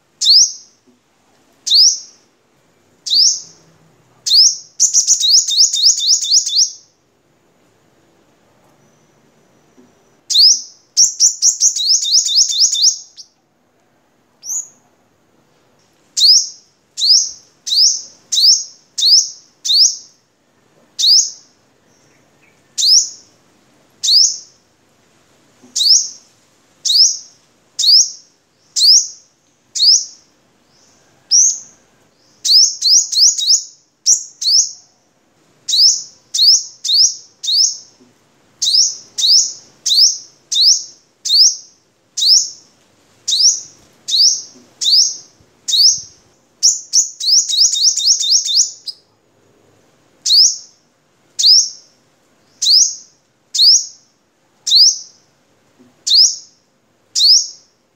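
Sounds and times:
bird singing chirps and trills: 0.2s - 0.7s, 3.1s - 3.6s, 4.3s - 6.9s, 10.3s - 13.3s, 16.2s - 20.1s, 29.8s - 34.8s, 43.3s - 49.0s, 52.5s - 54.0s, 56.1s - 56.5s.

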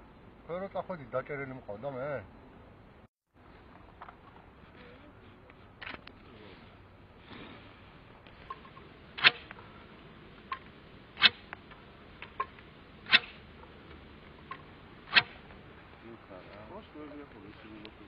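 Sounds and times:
throwing stick whoosh: 13.0s - 13.5s, 15.1s - 15.5s.

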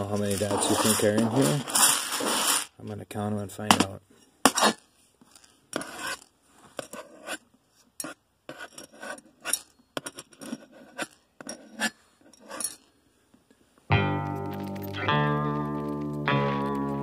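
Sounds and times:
knife scraping plastic pieces: 0.0s - 2.7s.

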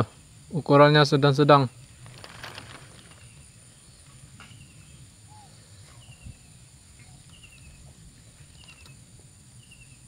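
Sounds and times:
bird chirping: 1.6s - 10.0s.

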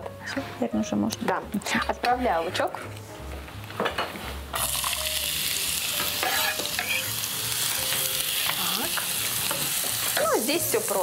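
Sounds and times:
onion sizzling in hot oil: 4.5s - 11.0s.

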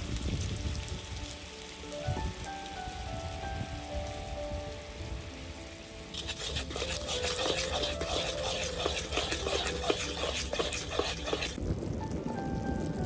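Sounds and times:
sauce bubbling and sizzling: 0.0s - 13.0s
metal spatula scraping wok: 6.1s - 11.6s.

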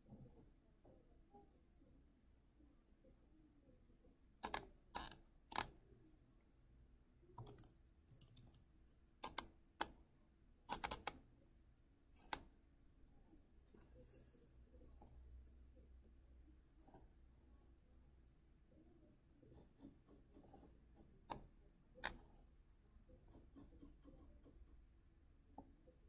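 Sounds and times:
keyboard keystrokes: 10.7s - 11.2s.

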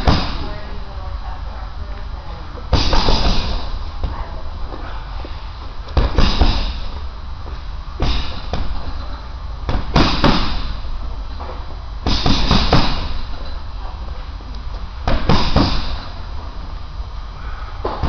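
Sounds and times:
boxing gloves punching a heavy bag: 0.0s - 0.5s, 2.7s - 3.8s, 6.0s - 7.0s, 8.0s - 8.9s, 9.7s - 10.8s, 12.0s - 13.4s, 15.1s - 16.1s.

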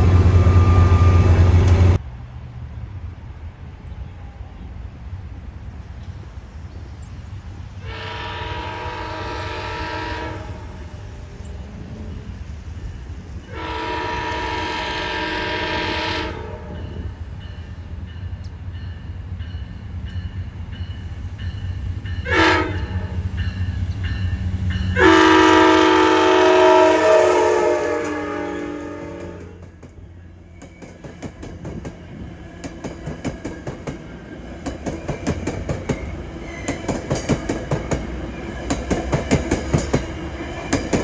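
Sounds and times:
locomotive air horn blasts: 7.8s - 10.9s, 13.5s - 16.9s, 22.2s - 23.2s, 25.0s - 29.6s.

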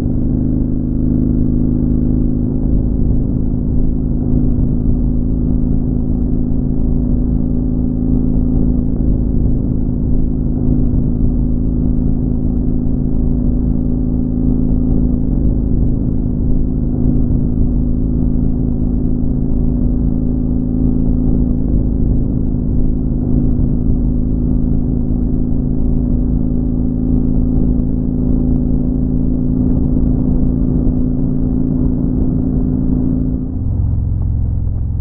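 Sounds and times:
motorcycle engine cruising: 0.0s - 35.0s
road and wind noise: 0.0s - 35.0s.

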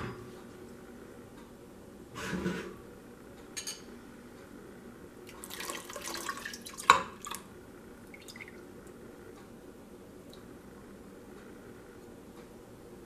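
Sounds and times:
liquid pouring and splashing: 5.3s - 7.4s, 8.1s - 8.6s.

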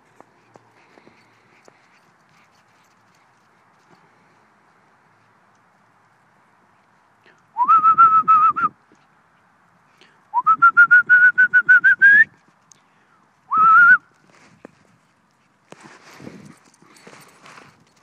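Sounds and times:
person whistling: 7.6s - 8.8s, 10.3s - 12.3s, 13.5s - 14.1s.

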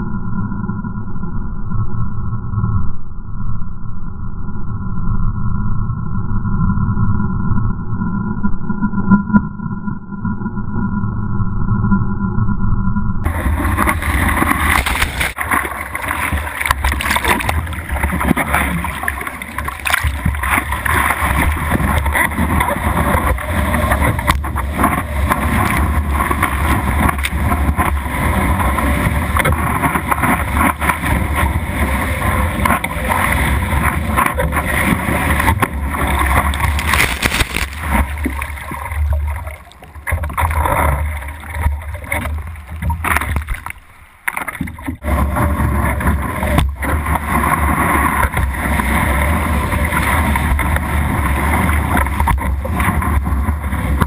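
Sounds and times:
wind rumbling on microphone: 0.0s - 54.0s
seawater rushing and splashing: 13.3s - 54.0s.

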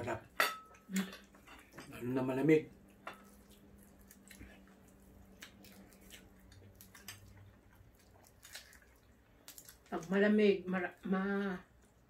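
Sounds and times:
quiet chewing: 2.7s - 10.1s.

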